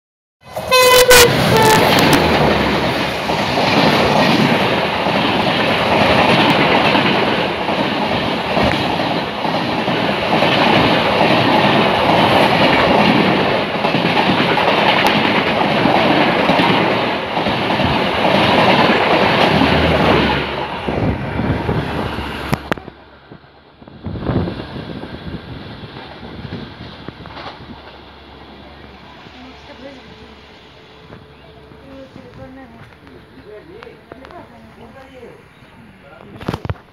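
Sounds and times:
locomotive horn blast: 0:00.4 - 0:02.2
train wheels rushing on rails: 0:00.4 - 0:36.9.

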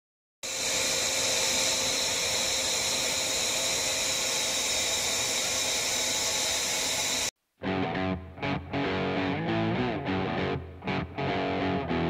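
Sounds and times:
blower whine: 0:00.4 - 0:07.3
forge fire with rushing air: 0:00.4 - 0:07.3.

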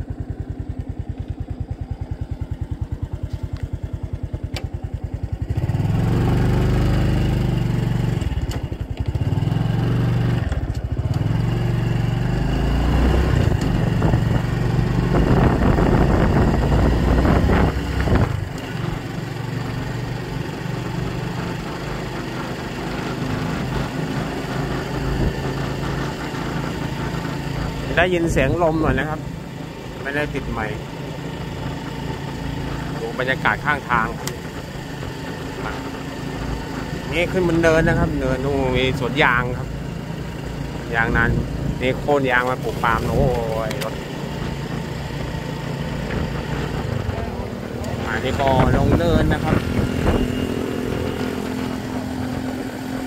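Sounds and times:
motorcycle engine running: 0:00.0 - 0:53.0
wind buffeting microphone: 0:13.4 - 0:18.6, 0:46.2 - 0:50.4.

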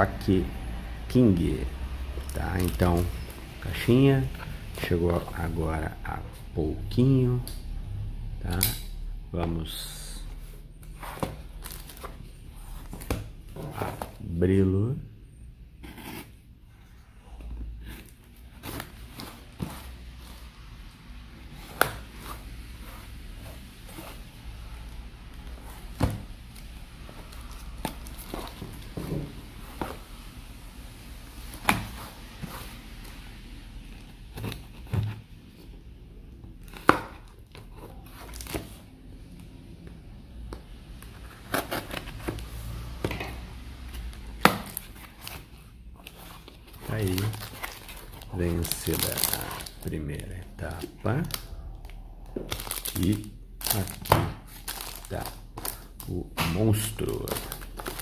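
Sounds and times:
box handling sounds: 0:21.5 - 0:30.1, 0:36.6 - 0:38.8, 0:41.0 - 0:58.0
cardboard rustling and tearing: 0:36.6 - 0:38.8, 0:44.1 - 0:51.4, 0:52.4 - 0:58.0.

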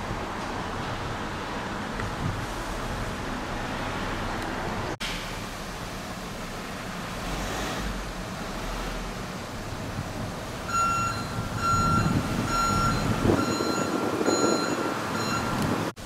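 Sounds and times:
engine rumble: 0:00.0 - 0:16.0
street noise: 0:00.0 - 0:16.0
truck reversing alarm beeping: 0:10.6 - 0:15.7.

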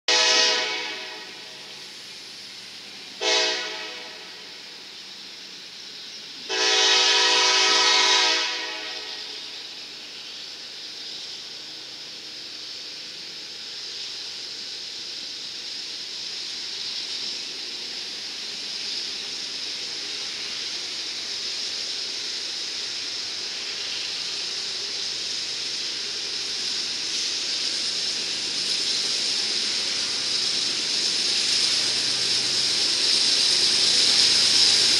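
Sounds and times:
diesel locomotive horn blasts: 0:00.1 - 0:01.5, 0:03.2 - 0:04.5, 0:06.5 - 0:09.4
approaching train: 0:00.1 - 0:34.9.

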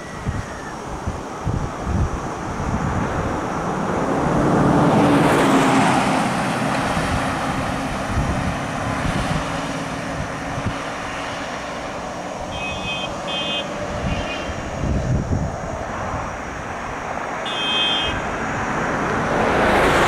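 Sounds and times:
car driving past: 0:17.5 - 0:20.0.

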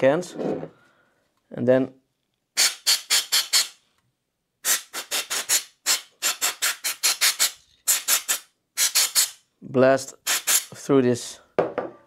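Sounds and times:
compressed air hissing blasts: 0:04.6 - 0:09.4, 0:10.2 - 0:10.7.

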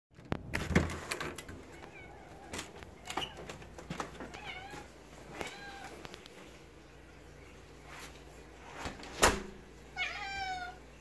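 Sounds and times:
cat meowing: 0:01.7 - 0:03.4, 0:04.2 - 0:06.1, 0:09.9 - 0:10.9.

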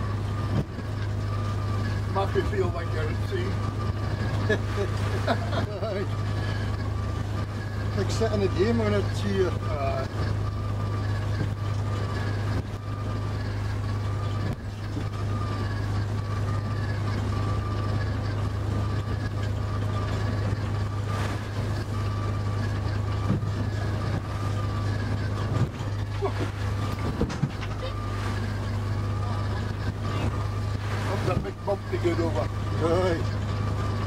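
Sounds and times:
waves knocking on hull: 0:00.0 - 0:01.2, 0:13.5 - 0:16.3, 0:20.2 - 0:34.0
boat engine running: 0:00.0 - 0:34.0.

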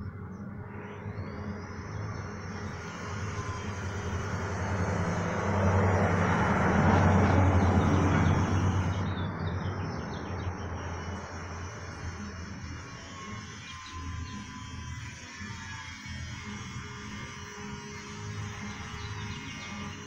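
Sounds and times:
vehicle passing by: 0:02.8 - 0:12.5.

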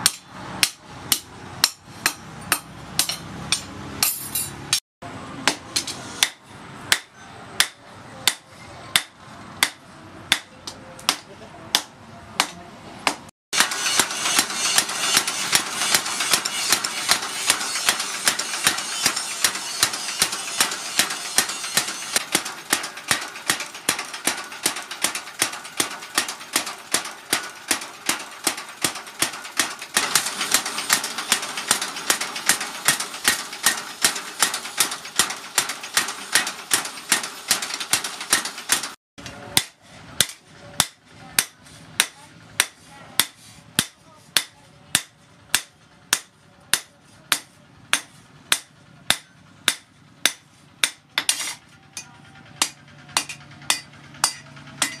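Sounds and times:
hammer striking metal: 0:00.0 - 0:55.0.

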